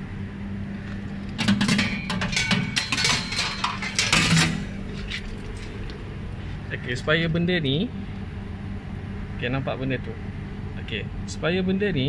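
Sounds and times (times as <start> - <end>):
steady low hum: 0.0 - 12.0
wire coils clinking and rattling: 1.4 - 4.8.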